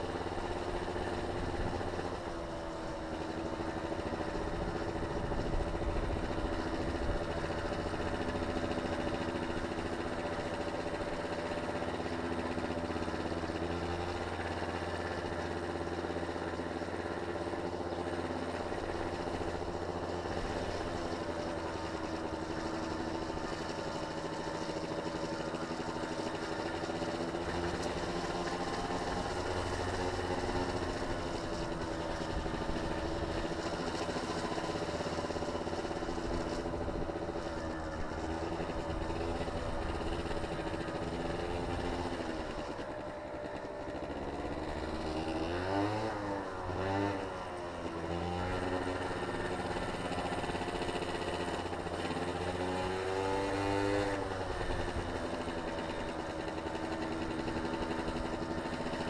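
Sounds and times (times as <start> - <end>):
small engine running: 0.0 - 59.0.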